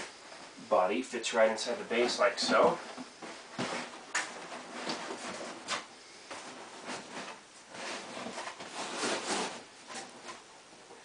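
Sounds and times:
cardboard scraping: 1.9s - 10.4s.

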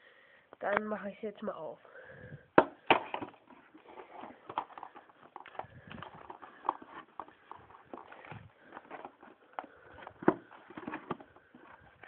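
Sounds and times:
cardboard box snapping: 2.6s - 3.5s
cardboard clicks and crinkles: 2.8s - 12.0s.

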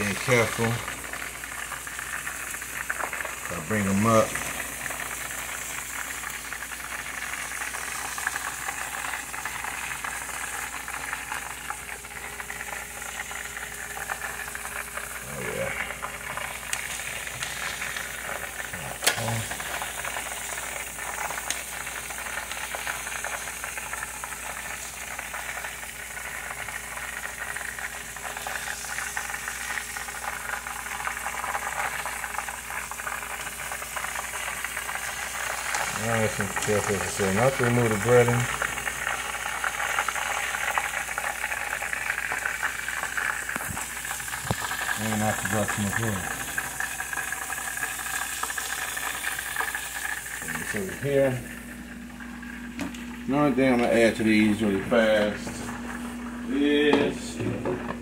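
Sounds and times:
chicken wings sizzling in oil: 0.0s - 58.0s.

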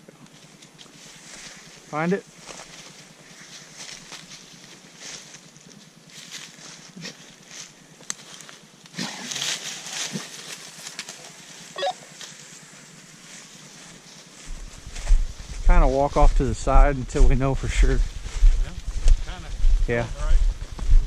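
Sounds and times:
rustling through leafy undergrowth: 0.3s - 16.1s
footsteps: 13.2s - 21.0s.

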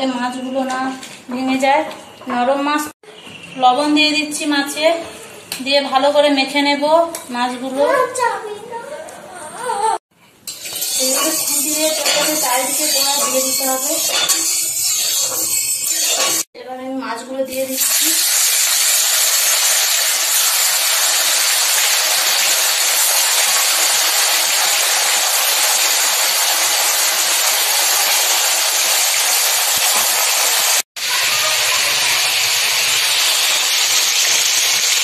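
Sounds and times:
fish sizzling in hot oil: 10.5s - 16.5s, 17.6s - 35.0s.

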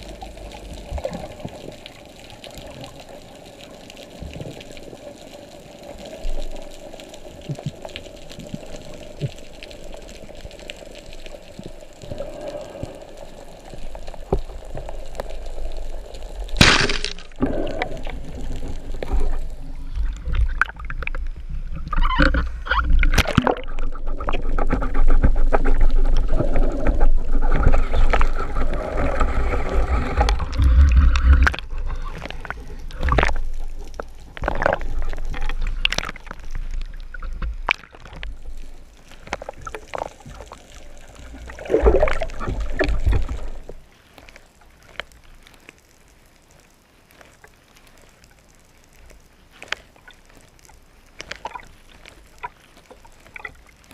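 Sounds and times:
underwater hiss: 0.0s - 24.2s
rushing water: 0.0s - 53.9s
speargun firing crack: 16.6s - 17.3s.

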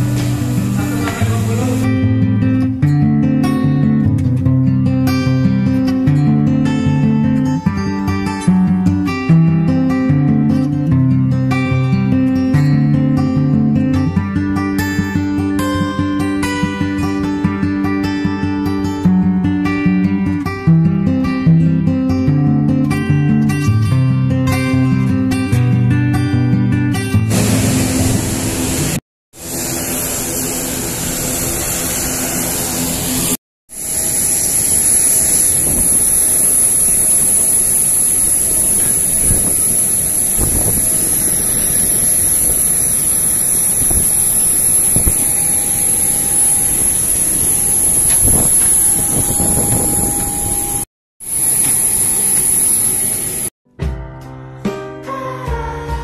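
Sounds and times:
jet aircraft rush with high whine: 0.0s - 2.0s, 27.3s - 53.5s.

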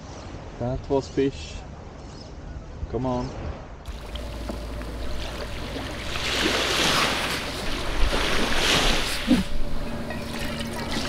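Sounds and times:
waves washing onto sand: 3.9s - 9.8s.

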